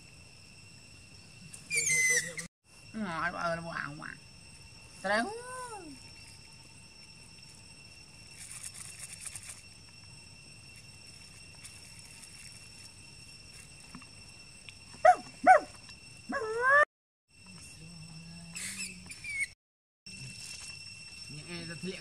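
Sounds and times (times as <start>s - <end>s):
young monkey squealing: 1.7s - 2.5s, 18.6s - 19.6s.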